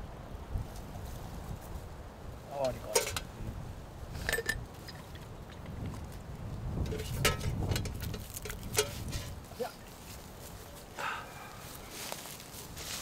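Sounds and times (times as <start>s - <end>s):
wind rumble on microphone: 0.0s - 10.9s
metal containers clicking in leaves: 2.7s - 3.3s, 6.8s - 10.3s.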